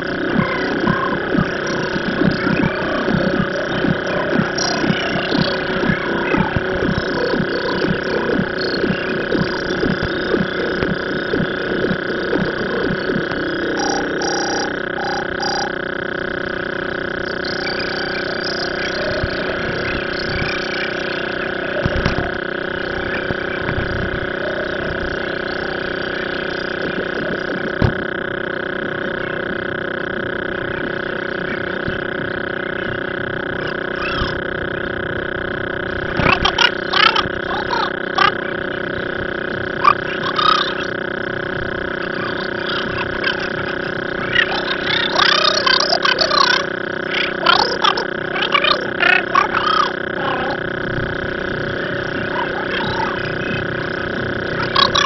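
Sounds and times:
short beeps: 0.0s - 15.8s
steady mechanical hum: 0.0s - 55.0s.

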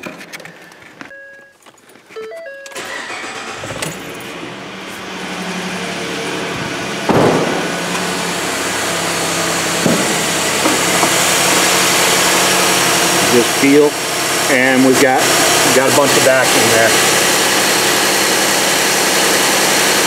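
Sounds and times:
engine starting and idling: 2.5s - 20.0s
sharp thump: 7.0s - 7.8s.

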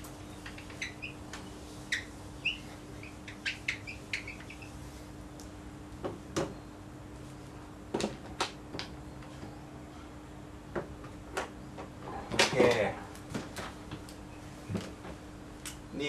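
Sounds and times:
whiteboard marker squeaking: 0.4s - 1.2s, 1.9s - 4.8s.

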